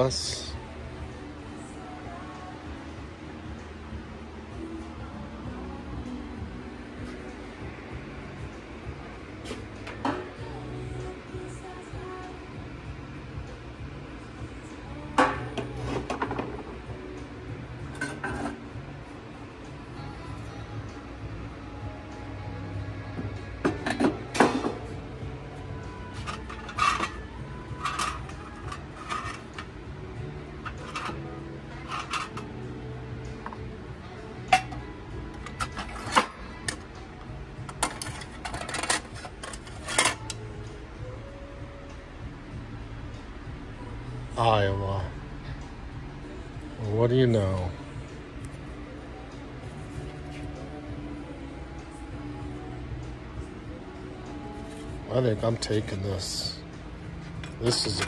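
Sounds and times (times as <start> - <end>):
quiet background music: 0.0 - 58.0
hard objects clattering and clinking: 26.2 - 29.7, 30.6 - 31.2, 31.8 - 32.5, 37.7 - 40.4.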